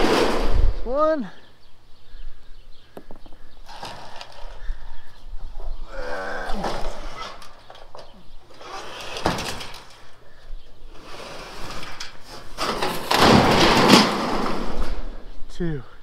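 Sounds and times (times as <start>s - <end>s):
tin sheet scraping: 3.6s - 4.7s, 8.5s - 10.1s, 10.9s - 15.1s.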